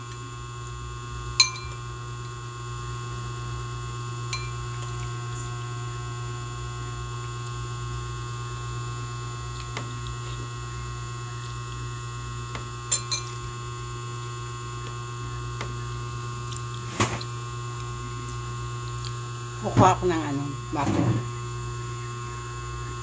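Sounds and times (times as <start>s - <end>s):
steady electrical hum: 0.0s - 23.0s
metal spoon clinking glass bowl: 1.4s - 1.8s, 4.3s - 4.6s, 12.9s - 13.4s.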